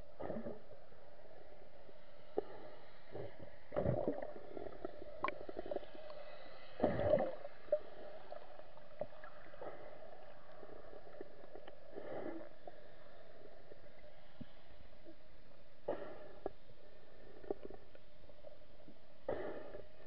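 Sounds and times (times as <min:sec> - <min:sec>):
faint underwater hum: 0:00.0 - 0:20.0
underwater gurgling burst: 0:03.7 - 0:06.0, 0:06.8 - 0:10.0.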